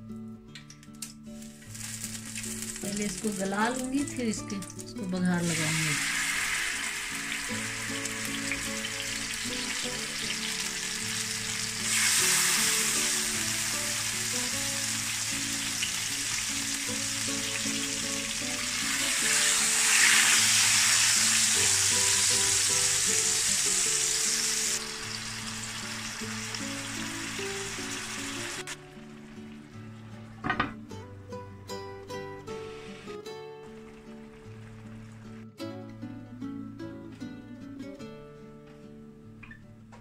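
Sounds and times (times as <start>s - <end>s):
soft background music: 0.0s - 40.0s
chicken sizzling in hot oil: 1.4s - 29.4s.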